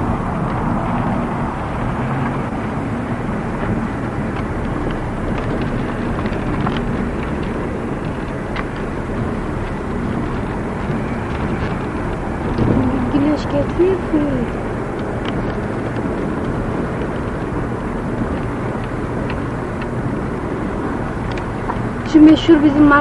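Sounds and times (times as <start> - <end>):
car engine hum: 0.0 - 23.0
road and wind noise: 0.0 - 23.0.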